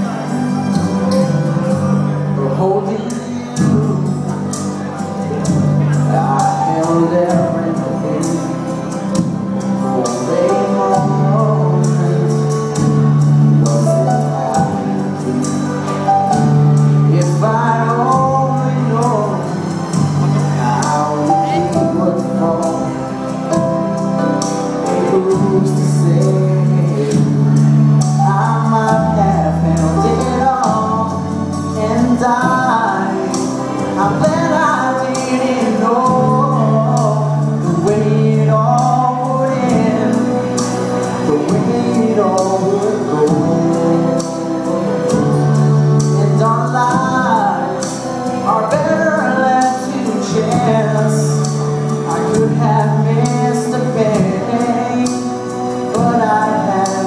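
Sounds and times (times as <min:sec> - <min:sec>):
man singing into microphone: 0:00.0 - 0:57.0
sustained bass notes: 0:00.0 - 0:57.0.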